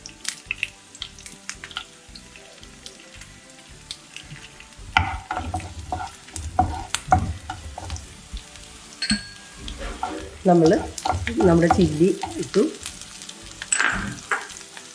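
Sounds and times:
garlic and chillies sizzling: 0.0s - 14.9s
stirring knocks and scrapes in pan: 4.3s - 14.6s.

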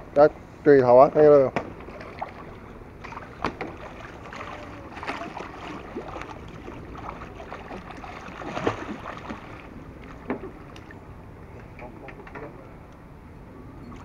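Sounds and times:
fish splashing in water: 1.8s - 11.0s.

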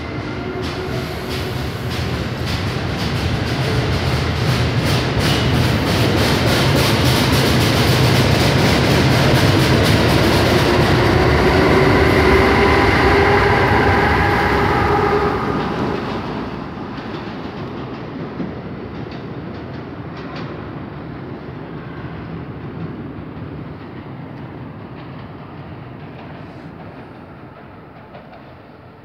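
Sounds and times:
train wheels clicking over rail joints: 0.4s - 11.0s.

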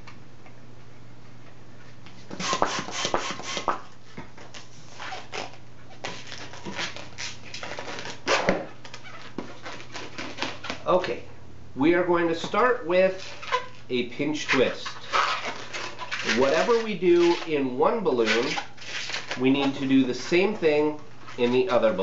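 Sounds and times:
balloon squeaking and rubbing: 2.2s - 11.1s, 13.1s - 22.0s
hand pump pumping: 2.3s - 3.8s.

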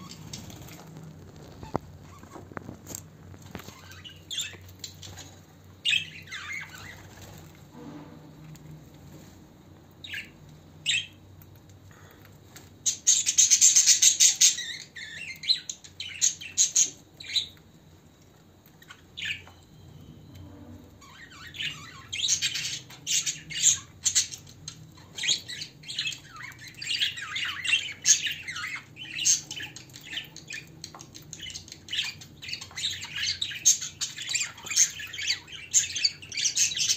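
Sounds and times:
budgerigars chirping and chattering: 0.0s - 2.5s, 3.5s - 7.4s, 12.8s - 17.6s, 21.0s - 36.9s.

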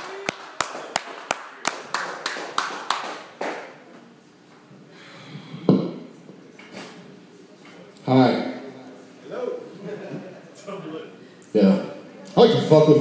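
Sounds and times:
audience clapping: 0.0s - 3.8s.

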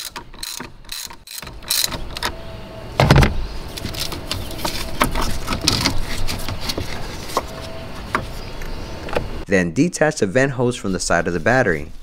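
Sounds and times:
loud thump: 3.0s - 3.4s.

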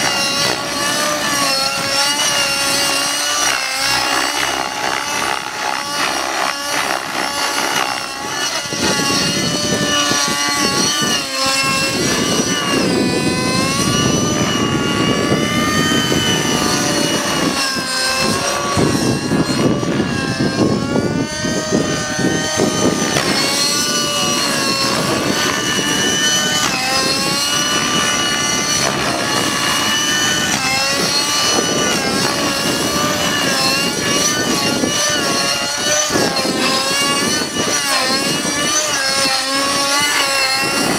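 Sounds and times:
rc helicopter engine whine: 0.0s - 40.9s
rough rushing noise: 0.0s - 40.9s.

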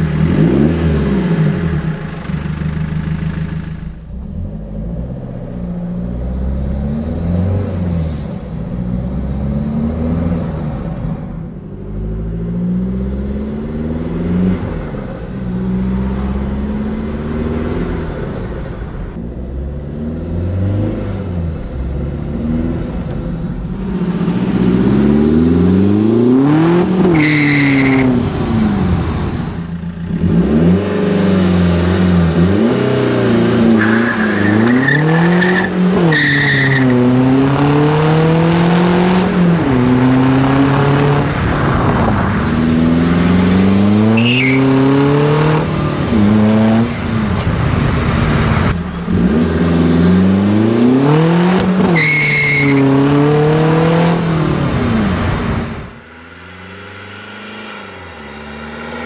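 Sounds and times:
turbodiesel engine accelerating: 0.0s - 52.0s, 52.9s - 59.0s
turbo whistles: 44.2s - 44.6s, 51.9s - 52.8s.

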